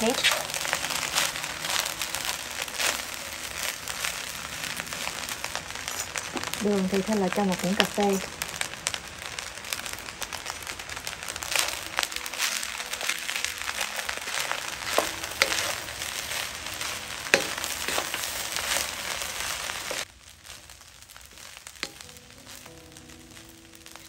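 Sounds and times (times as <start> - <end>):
rice sizzling in a pan: 0.0 - 24.0
wooden spatula scraping and tapping: 14.3 - 20.0, 21.8 - 22.1.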